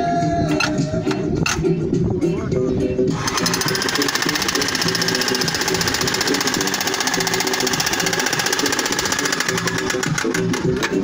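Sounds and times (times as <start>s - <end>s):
music: 0.0s - 11.0s
demolition hammer rattling: 3.2s - 11.0s.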